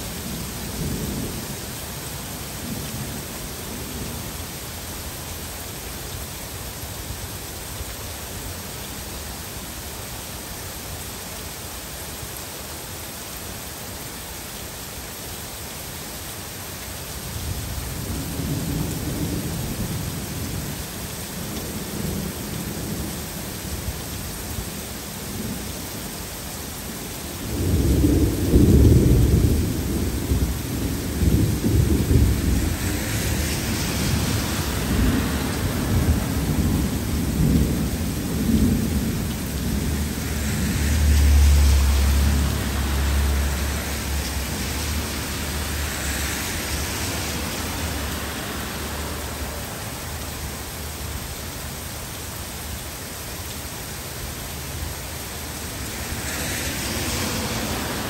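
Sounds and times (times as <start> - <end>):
heavy rain falling: 0.0 - 58.0
thunder rumbling: 27.5 - 50.6, 56.0 - 58.0.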